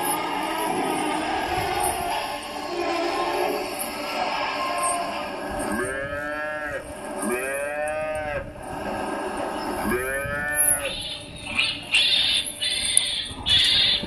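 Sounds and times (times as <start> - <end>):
cattle mooing: 0.0 - 8.5, 9.8 - 11.1.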